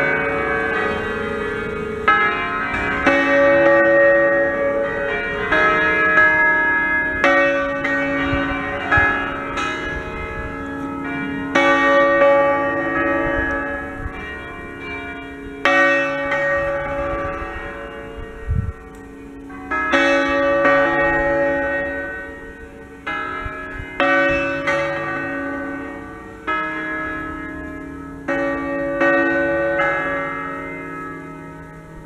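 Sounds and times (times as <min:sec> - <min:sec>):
church bells pealing: 0:00.0 - 0:32.0.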